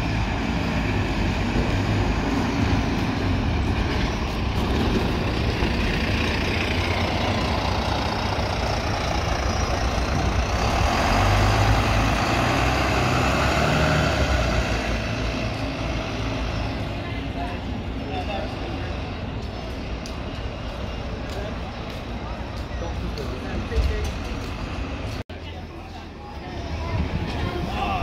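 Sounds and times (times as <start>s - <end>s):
bus diesel engine passing: 0.0s - 28.0s.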